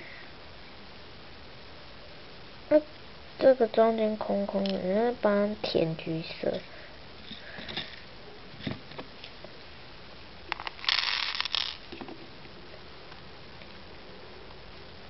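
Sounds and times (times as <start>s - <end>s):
plastic beads clattering: 10.5s - 12.0s.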